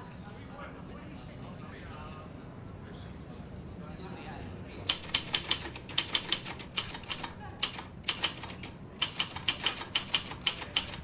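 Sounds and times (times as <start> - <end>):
typewriter keys clacking: 4.9 - 11.0.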